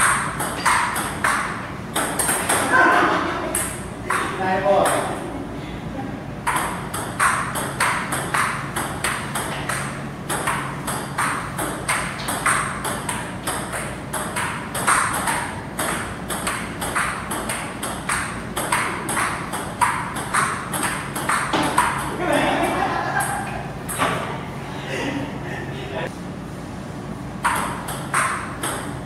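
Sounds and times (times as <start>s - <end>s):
table tennis ball clicking: 0.0s - 2.7s, 3.5s - 5.1s, 6.4s - 22.2s, 27.4s - 29.0s
steady low hum: 0.0s - 29.0s.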